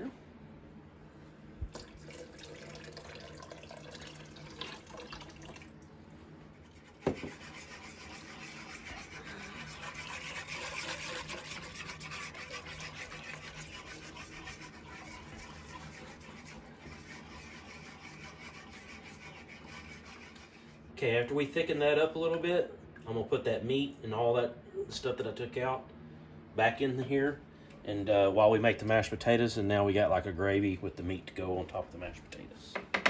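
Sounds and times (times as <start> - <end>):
liquid pouring: 1.7 - 5.9, 9.6 - 17.2
whisk scraping metal pot: 6.6 - 21.0.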